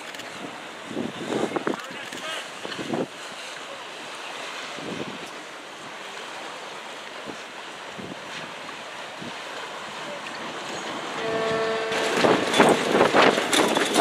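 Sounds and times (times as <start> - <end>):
choppy water rushing: 0.0 - 14.0
wind on microphone: 0.3 - 2.0, 2.6 - 3.2, 11.2 - 14.0.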